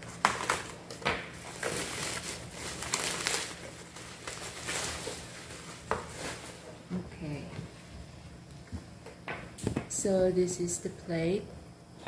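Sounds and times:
bubble wrap crinkling: 0:01.4 - 0:06.8.

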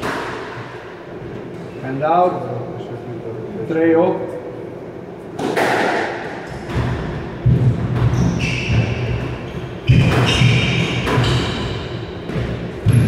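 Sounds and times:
squash ball hitting rackets and walls: 0:00.0 - 0:01.0, 0:05.3 - 0:13.0
shoes squeaking on wooden floor: 0:08.0 - 0:11.5.

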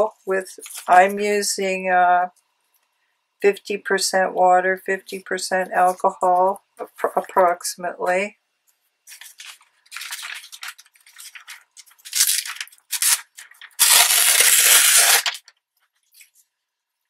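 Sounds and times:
magazine paper rustling: 0:00.4 - 0:01.2, 0:09.0 - 0:16.5
paper tearing: 0:09.1 - 0:15.5.

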